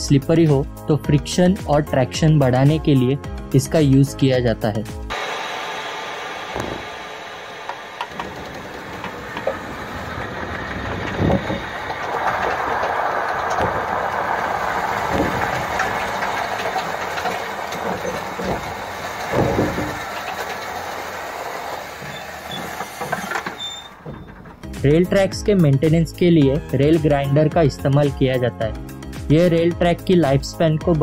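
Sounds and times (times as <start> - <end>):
sand blowing hiss: 5.1 - 23.6
train wheel rumbling on rail: 5.1 - 27.4
heavy knocks: 6.5 - 7.0, 7.6 - 24.9.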